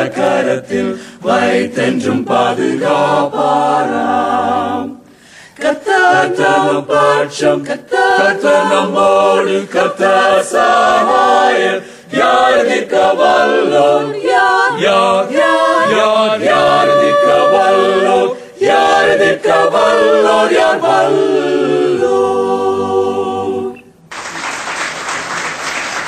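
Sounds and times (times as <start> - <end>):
choir singing in harmony: 0.0 - 24.0
applause: 24.1 - 26.0.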